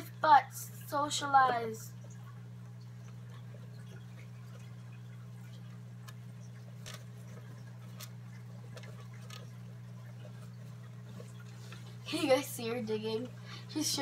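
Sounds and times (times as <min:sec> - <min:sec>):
low steady hum: 0:00.0 - 0:14.0
mice scrabbling in bedding: 0:05.5 - 0:12.1.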